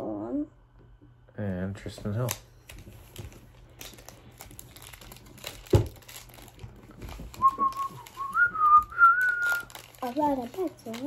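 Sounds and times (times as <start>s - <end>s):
cards being handled: 1.9s - 11.0s
foil wrappers crinkling: 2.0s - 11.0s
person whistling: 7.4s - 9.7s.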